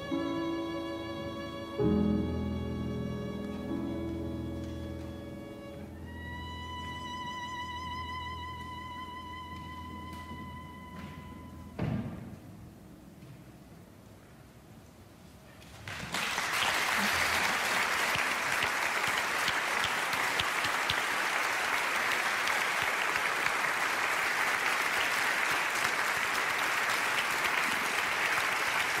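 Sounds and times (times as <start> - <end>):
audience applause: 15.7 - 29.0.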